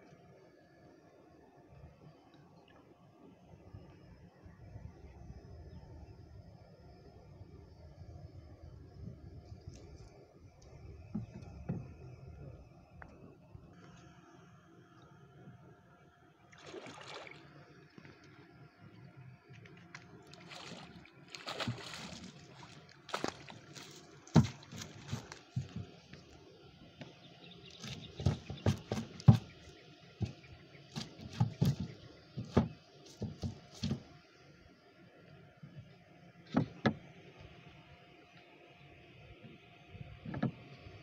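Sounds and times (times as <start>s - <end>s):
knocks and thumps on boat: 11.1s - 12.1s, 21.4s - 22.3s, 23.1s - 26.2s, 27.7s - 34.2s, 36.5s - 37.0s, 40.2s - 40.7s
water sloshing and splashing: 16.5s - 18.3s, 19.4s - 26.4s, 27.7s - 34.2s.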